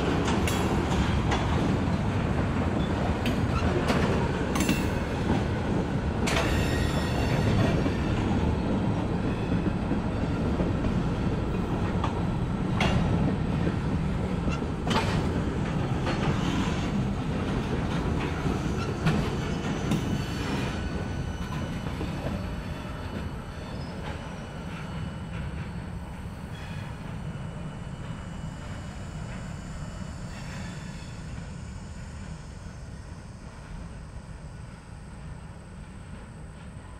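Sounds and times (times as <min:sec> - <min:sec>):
train wheels rumbling on rails: 0:00.0 - 0:36.9
faint wheel squeal: 0:26.4 - 0:27.2, 0:29.8 - 0:31.3.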